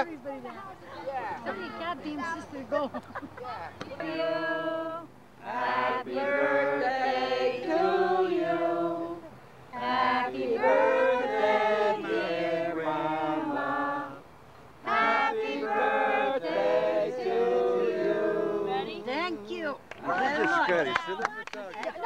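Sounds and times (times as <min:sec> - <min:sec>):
group of people singing: 0:03.8 - 0:19.6.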